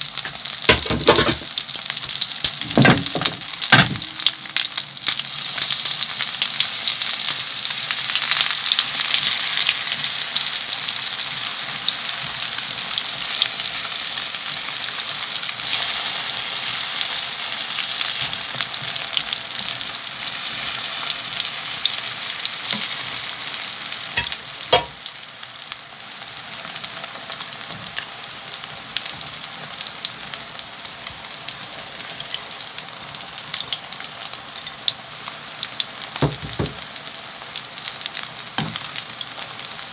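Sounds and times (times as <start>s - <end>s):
batter sizzling in oil: 0.0s - 39.9s.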